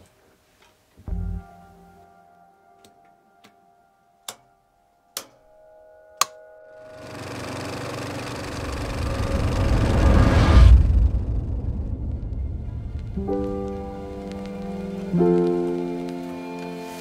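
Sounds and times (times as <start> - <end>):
faint musical drone: 1.0 - 17.0
rumbling noise: 8.4 - 16.0.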